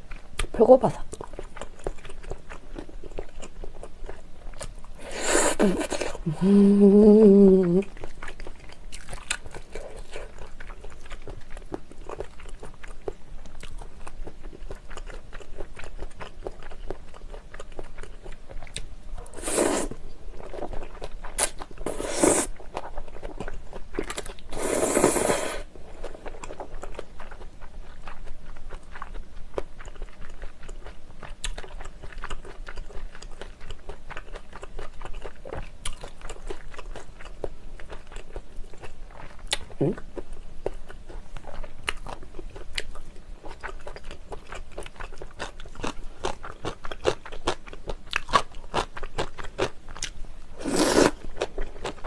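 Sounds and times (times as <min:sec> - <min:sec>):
wet chewing: 0:00.0 - 0:06.4, 0:07.5 - 0:52.0
person humming mmm: 0:05.1 - 0:07.9, 0:39.7 - 0:40.0
slurping noodles: 0:19.3 - 0:20.0, 0:21.8 - 0:22.5, 0:24.5 - 0:25.7, 0:50.6 - 0:51.2.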